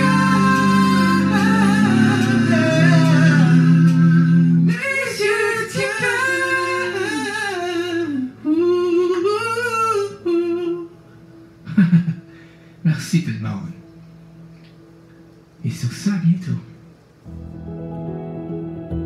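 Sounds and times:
held accompaniment tones: 0:00.0 - 0:09.1
man singing with vibrato: 0:00.0 - 0:11.0.

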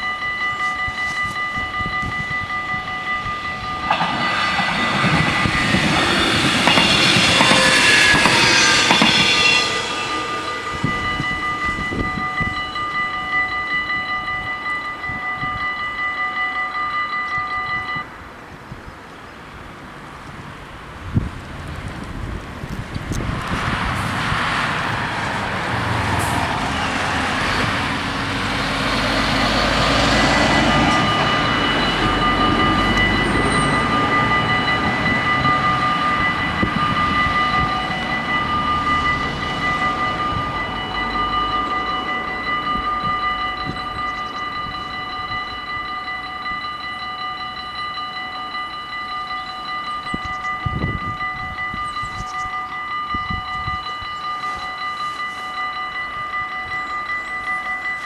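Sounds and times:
level crossing warning bells: 0:00.0 - 0:18.5, 0:23.1 - 0:58.0
lorry rumbling past: 0:03.3 - 0:12.7, 0:23.2 - 0:43.9.

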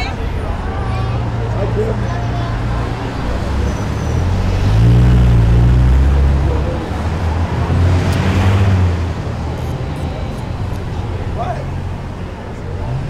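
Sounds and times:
traffic engine rumble: 0:00.0 - 0:13.0.

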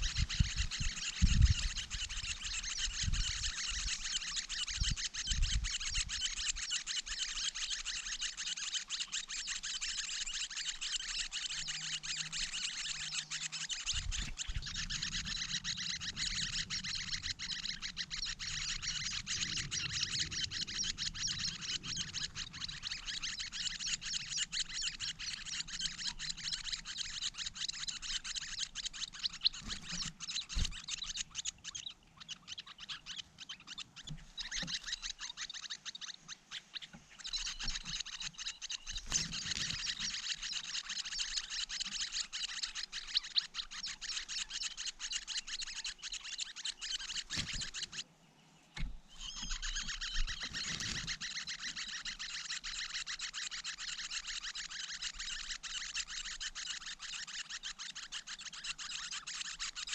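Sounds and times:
nestlings chirping: 0:00.0 - 0:59.9.

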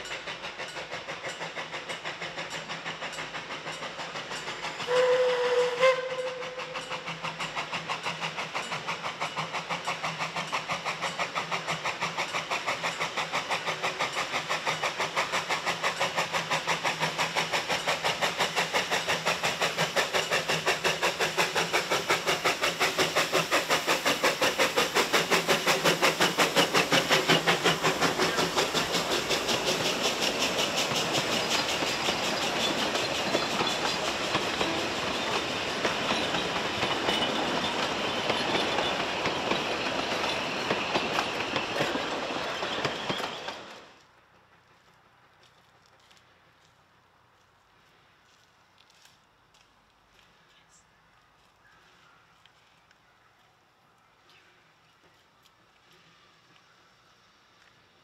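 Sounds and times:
steam train rhythmic beat: 0:00.0 - 0:43.8
steam whistle blast: 0:04.8 - 0:06.8.

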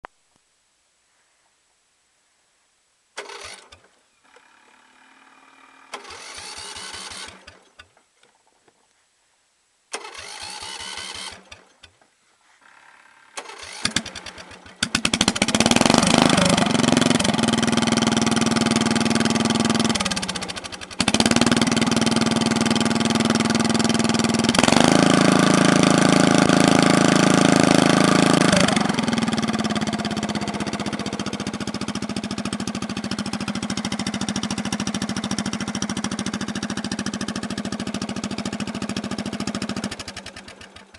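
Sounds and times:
mower engine cranking: 0:03.2 - 0:08.1, 0:09.9 - 0:40.9
mower engine running fast: 0:04.6 - 0:07.6, 0:12.6 - 0:40.9.

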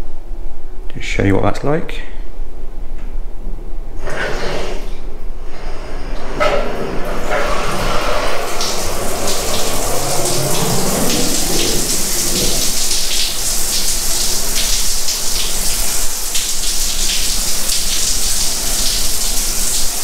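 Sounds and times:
shower water hissing onto tiles: 0:07.0 - 0:20.0.

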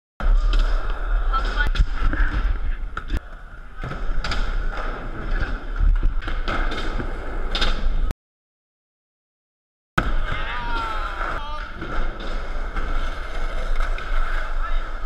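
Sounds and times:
skateboards rolling and clacking: 0:10.7 - 0:15.0.

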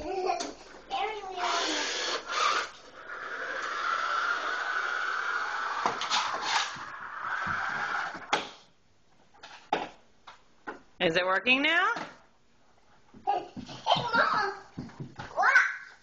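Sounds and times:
toy car motor whirring: 0:01.3 - 0:08.3.

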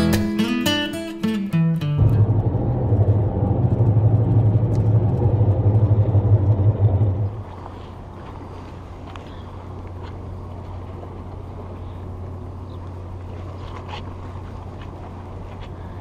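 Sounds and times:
acoustic guitar music: 0:00.0 - 0:06.4
quiet outdoor hum: 0:01.5 - 0:16.0
car cabin road rumble: 0:01.8 - 0:16.0.

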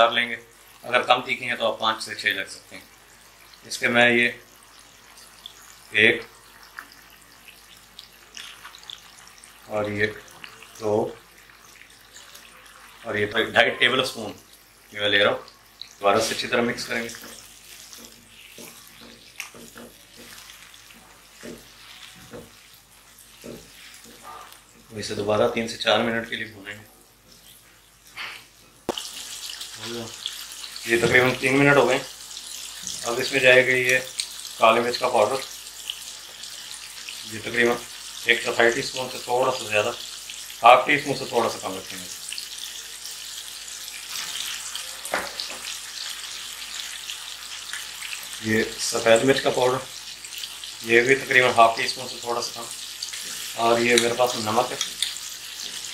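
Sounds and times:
food sizzling in a pan: 0:00.0 - 0:55.9
wooden spoon scraping a pan: 0:16.2 - 0:24.7.

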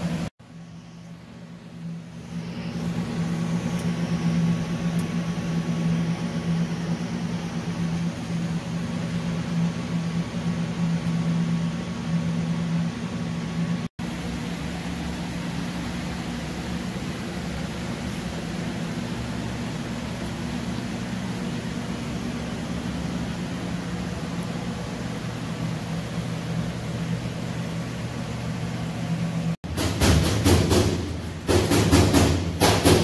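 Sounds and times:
steady shop hum: 0:00.0 - 0:33.0
welding arc humming and hissing: 0:01.8 - 0:29.6.

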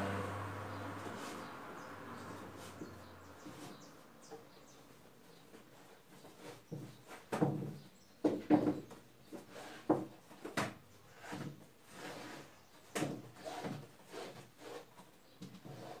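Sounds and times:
fabric rubbing and scraping: 0:00.9 - 0:03.9, 0:11.1 - 0:15.0, 0:15.6 - 0:16.0.

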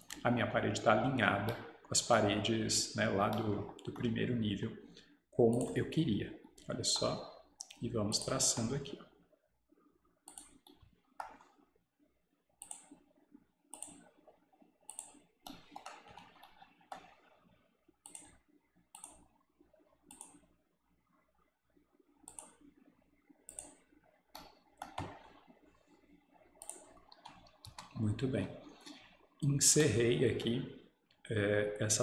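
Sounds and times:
faint computer mouse clicks: 0:10.3 - 0:11.5, 0:12.6 - 0:13.0, 0:13.7 - 0:14.1, 0:14.9 - 0:17.2, 0:18.0 - 0:19.3, 0:20.1 - 0:20.4, 0:22.3 - 0:22.6, 0:23.5 - 0:23.8, 0:26.6 - 0:28.0.

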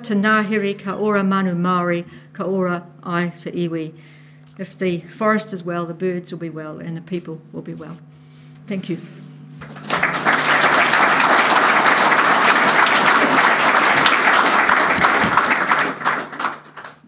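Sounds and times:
audience applauding: 0:09.6 - 0:17.0.

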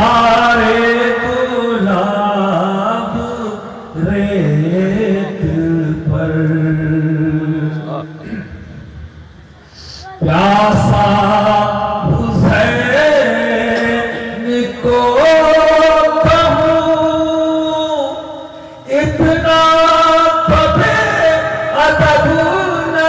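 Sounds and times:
man chanting: 0:00.0 - 0:08.3, 0:09.8 - 0:23.0.

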